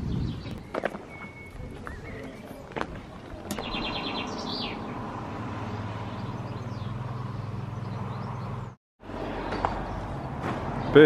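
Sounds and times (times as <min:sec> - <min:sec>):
small bird chirping: 0:03.5 - 0:05.0.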